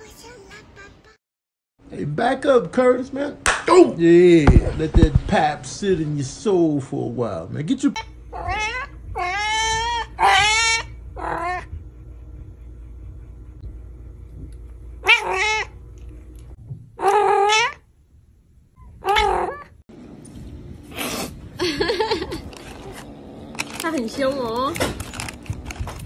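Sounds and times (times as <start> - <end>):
cat meowing: 8.3 - 11.7, 15.0 - 15.8, 17.0 - 17.8, 19.0 - 19.7.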